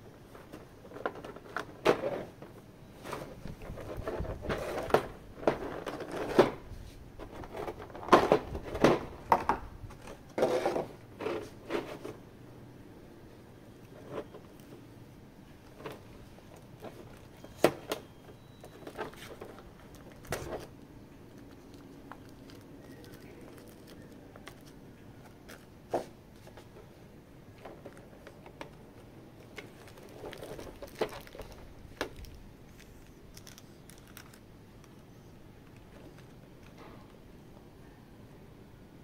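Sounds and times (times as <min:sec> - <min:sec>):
packaging crinkling: 0:15.6 - 0:25.8, 0:27.5 - 0:35.0.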